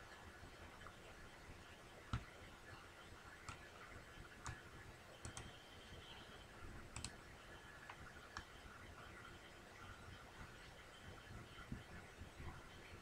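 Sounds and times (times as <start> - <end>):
computer mouse clicks: 2.1 - 2.4, 3.4 - 3.7, 4.4 - 4.6, 5.2 - 5.6, 6.9 - 7.2, 7.8 - 8.5.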